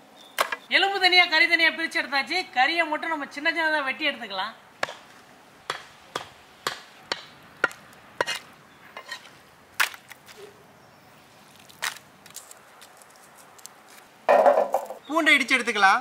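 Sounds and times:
cleaver chopping meat on wood: 0:04.8 - 0:05.0, 0:05.7 - 0:08.4.

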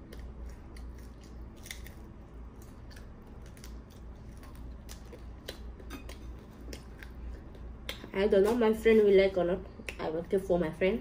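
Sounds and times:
person chewing and biting: 0:00.0 - 0:08.1.

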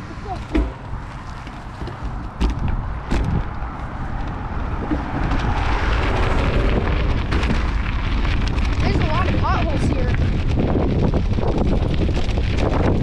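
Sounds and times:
bicycle tyres on gravel: 0:00.0 - 0:13.0
wind rumble on microphone: 0:00.0 - 0:13.0
sharp knocks from bumps: 0:00.4 - 0:00.9, 0:01.8 - 0:03.5.

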